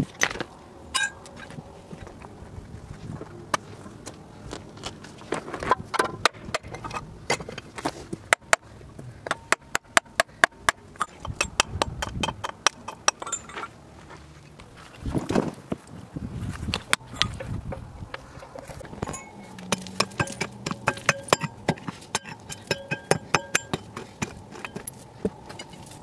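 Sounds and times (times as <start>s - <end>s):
stones and soil scraping: 12.7s - 26.0s
hammer striking stone: 19.1s - 24.9s.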